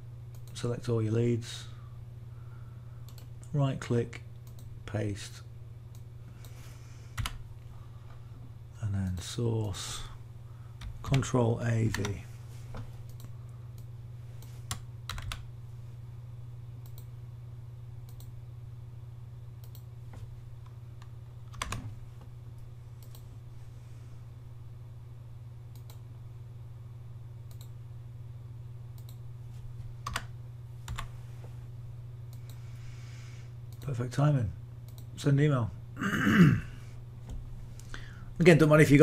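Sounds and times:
steady low hum: 0.0s - 39.0s
keyboard and mouse clicks: 7.2s - 7.4s, 19.6s - 19.9s, 27.5s - 27.7s.

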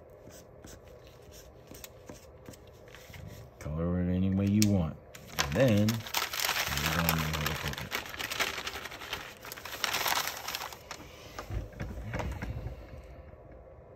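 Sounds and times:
paper bag crinkling and rustling: 5.2s - 11.7s.

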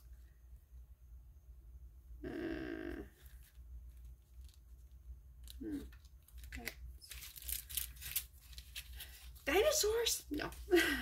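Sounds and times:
person humming: 2.2s - 3.2s, 5.6s - 6.0s
sticker sheets rustling: 3.2s - 10.8s.

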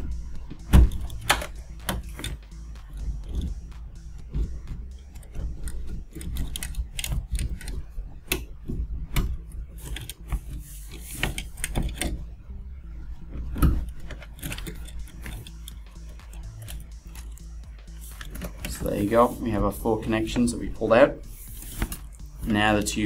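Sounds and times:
plastic connectors clicking: 5.1s - 8.5s, 9.1s - 12.2s.

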